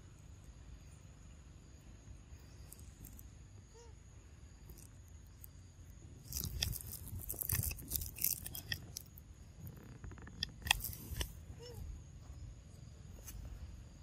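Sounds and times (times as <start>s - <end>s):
faint forest background: 0.0s - 14.0s
scratchy rustling and crackling: 6.2s - 11.3s.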